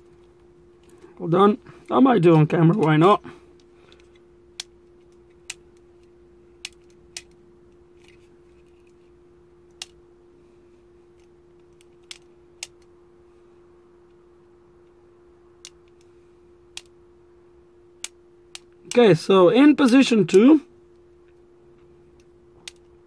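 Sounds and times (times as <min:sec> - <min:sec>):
faint steady hum: 0:00.0 - 0:23.0
small sharp plastic clicks: 0:03.6 - 0:09.0, 0:09.7 - 0:10.0, 0:11.1 - 0:12.9, 0:15.6 - 0:16.1, 0:16.7 - 0:17.0, 0:18.0 - 0:19.1, 0:21.2 - 0:23.0.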